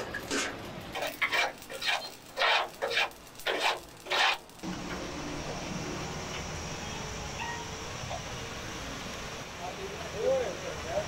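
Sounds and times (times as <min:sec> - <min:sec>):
steady background noise: 0:00.0 - 0:11.0
scraping inside steel housing: 0:00.1 - 0:04.6.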